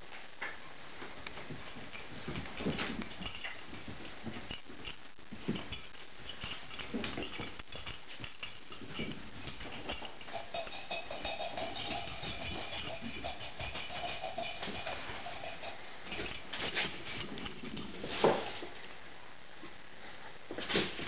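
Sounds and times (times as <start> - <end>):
dog tags jingling: 1.6 - 18.0.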